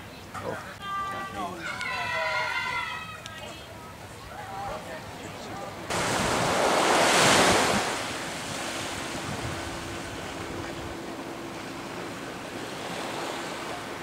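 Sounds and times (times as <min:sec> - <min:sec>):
small waves washing on sand: 0:05.4 - 0:14.0
wind buffeting microphone: 0:05.9 - 0:14.0.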